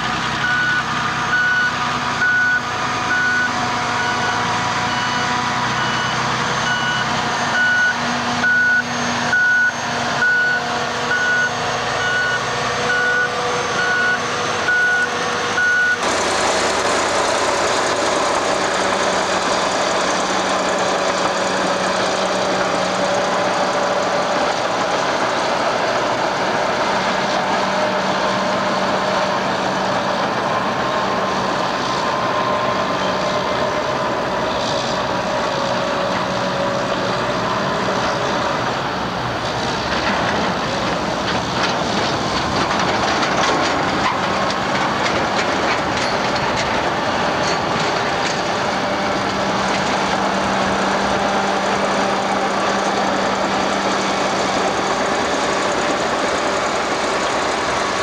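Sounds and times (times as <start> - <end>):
diesel engines running: 0.0 - 58.0
reversing alarm beeping: 0.4 - 16.8
clunks: 39.9 - 50.2.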